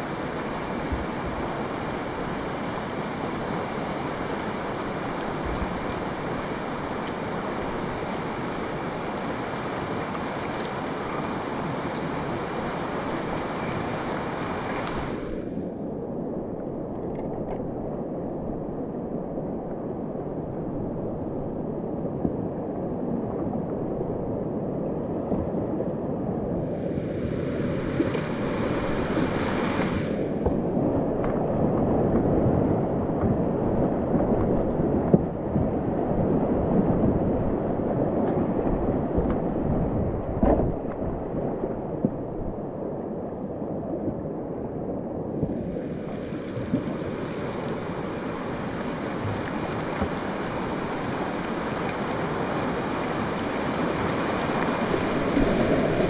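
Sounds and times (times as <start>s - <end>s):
whitewater rushing: 0.0s - 15.6s, 26.7s - 30.8s, 45.5s - 56.0s.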